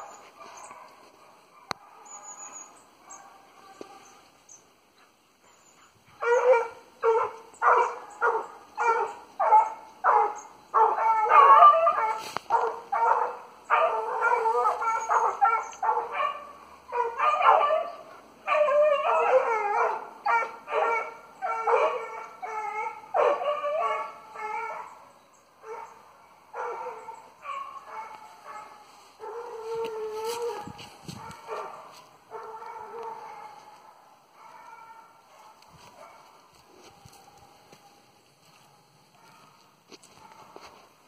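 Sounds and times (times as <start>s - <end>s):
hunting dogs baying: 6.1s - 25.0s, 25.6s - 40.8s.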